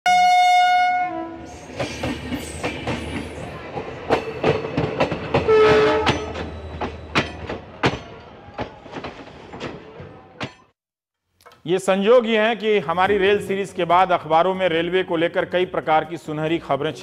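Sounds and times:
train horn: 0:00.1 - 0:01.5, 0:05.5 - 0:06.3
train wheels clacking on rails: 0:01.6 - 0:10.2.

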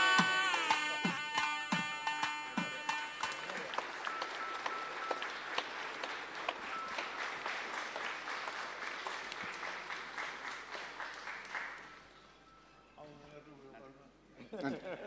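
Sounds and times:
crowd applauding: 0:02.5 - 0:12.2.

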